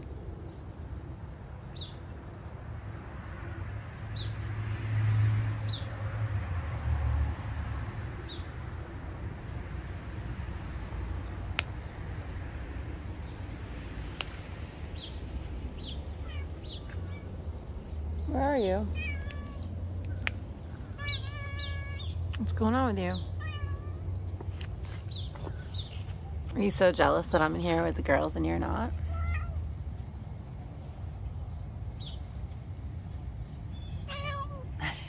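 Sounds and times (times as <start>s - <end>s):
small birds chirping: 12.8s - 35.0s.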